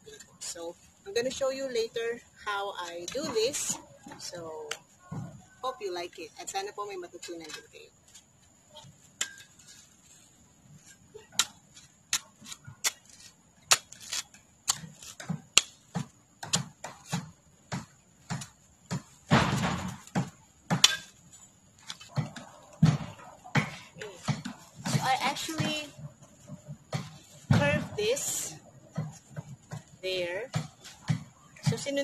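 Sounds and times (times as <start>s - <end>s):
scraping rustle: 7.2s - 15.4s.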